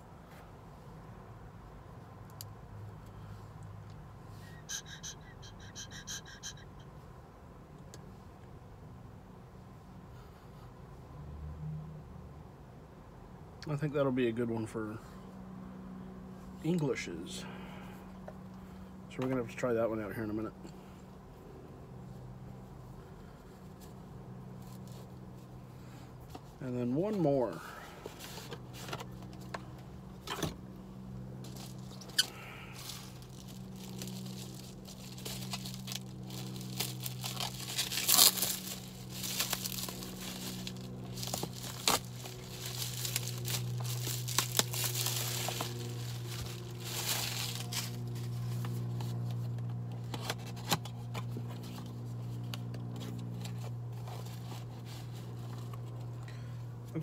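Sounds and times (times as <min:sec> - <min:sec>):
packaging tearing and crinkling: 0:32.8 - 0:48.1.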